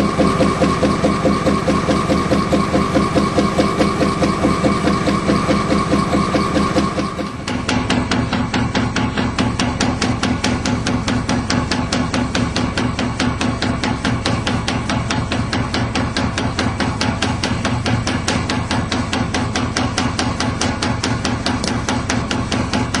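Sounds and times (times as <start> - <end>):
machine knocking rapidly: 0.0 - 23.0.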